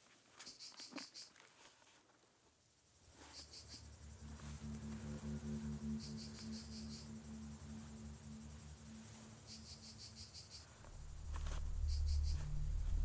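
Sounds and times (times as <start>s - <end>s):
crickets chirping: 2.9s - 13.0s
low steady hum: 3.0s - 13.0s
deep rumble: 3.1s - 13.0s.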